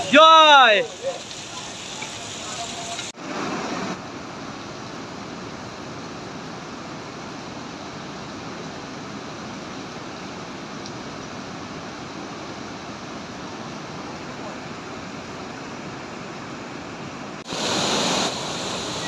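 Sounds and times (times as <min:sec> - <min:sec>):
stream rushing over rocks: 0:00.0 - 0:19.0.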